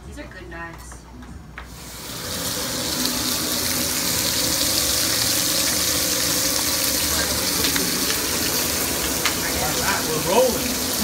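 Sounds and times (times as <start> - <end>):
chicken sizzling in hot oil: 1.8 - 11.0.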